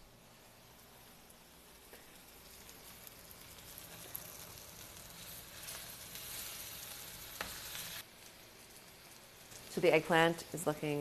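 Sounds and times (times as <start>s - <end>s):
eggplant sizzling in oil: 0.0s - 11.0s
spatula moving food in pan: 1.4s - 9.7s.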